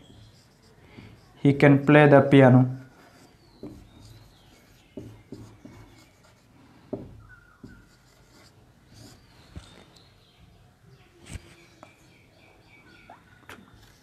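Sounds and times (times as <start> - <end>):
marker pen writing on whiteboard: 0.0 - 2.1, 2.8 - 10.0.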